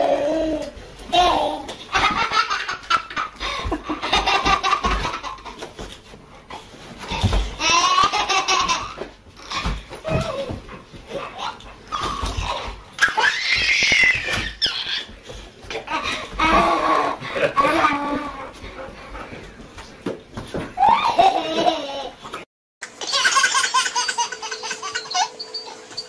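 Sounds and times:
baby laughing and squealing: 11.4s - 15.1s, 22.9s - 26.0s.

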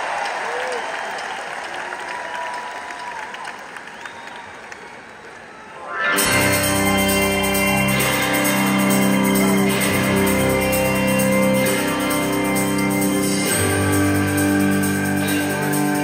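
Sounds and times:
live rock band playing: 5.9s - 16.0s.

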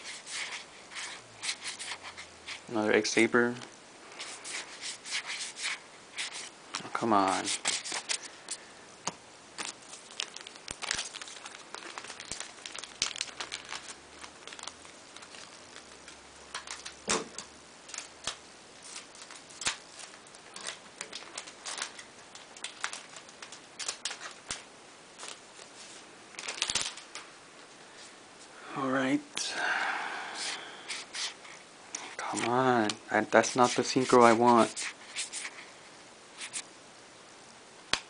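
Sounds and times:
foil wrapper crinkling and tearing: 4.2s - 8.6s, 9.6s - 27.3s, 30.4s - 35.7s.

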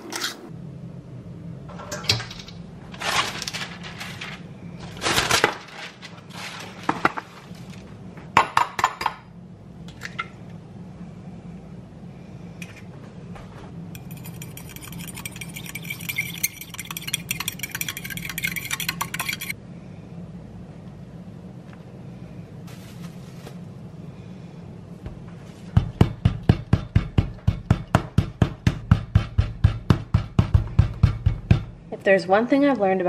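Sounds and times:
fork whisking egg in bowl: 14.0s - 19.6s.

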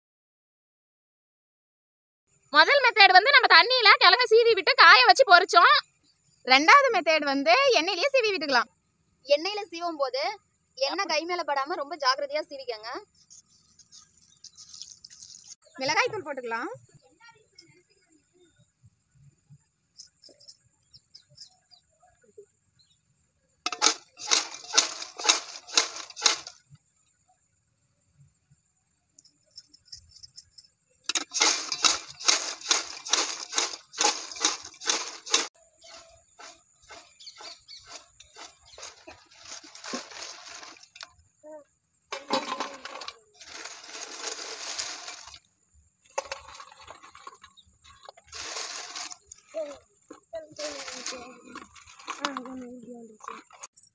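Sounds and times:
chips rattling in metal pot: 13.7s - 15.6s, 23.7s - 26.6s, 31.1s - 41.1s, 42.1s - 45.4s, 46.2s - 49.6s, 50.6s - 52.5s.

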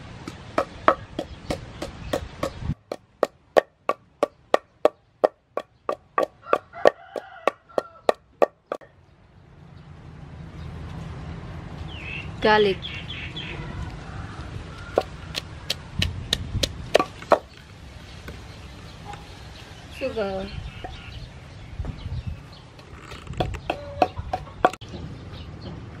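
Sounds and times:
wooden pestle pounding in mortar: 0.2s - 8.9s, 15.0s - 17.5s.

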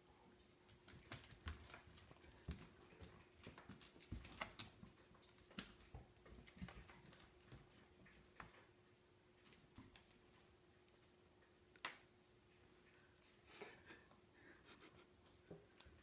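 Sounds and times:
claws clicking on hardwood floor: 0.7s - 7.7s.

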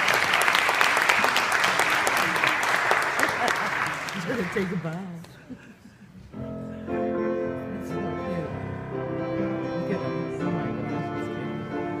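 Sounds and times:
keyboard sustained chords: 6.4s - 12.0s.

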